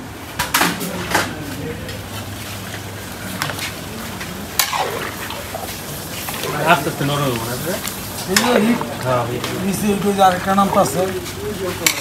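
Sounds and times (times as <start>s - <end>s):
steady low hum: 0.0s - 11.9s
faint voices: 0.6s - 12.0s
metal bowls and utensils clattering: 11.8s - 12.0s.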